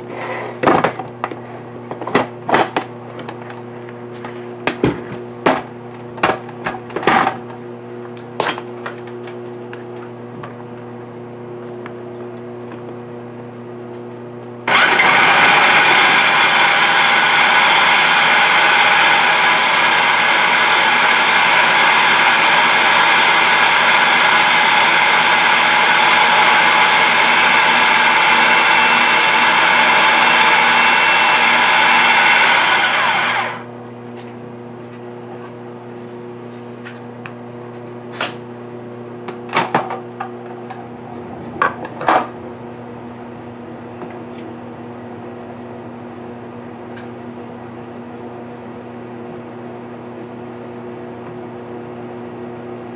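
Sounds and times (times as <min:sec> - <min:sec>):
blender running: 0:14.6 - 0:33.7, 0:40.3 - 0:46.7.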